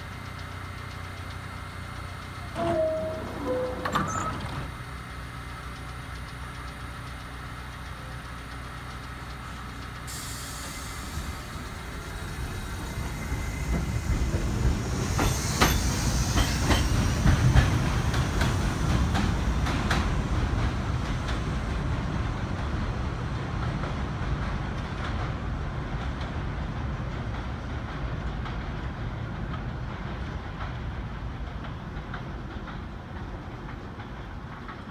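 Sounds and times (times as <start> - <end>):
subway train rumble: 0.0 - 34.9
hiss: 5.9 - 20.3.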